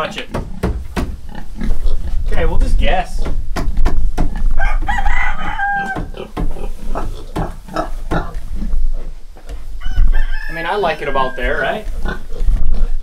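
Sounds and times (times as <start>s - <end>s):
knocks and rustles: 0.0s - 5.2s, 5.8s - 10.1s
rooster crowing: 4.6s - 6.2s, 9.8s - 11.8s.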